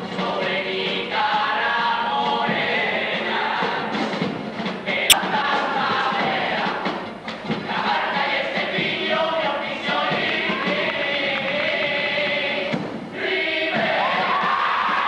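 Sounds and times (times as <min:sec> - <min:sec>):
chorus singing together: 0:07.6 - 0:15.0.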